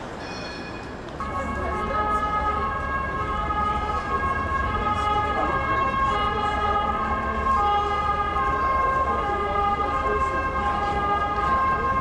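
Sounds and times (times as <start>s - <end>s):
faint street voices: 0.0s - 12.0s
two-tone emergency siren: 1.2s - 12.0s.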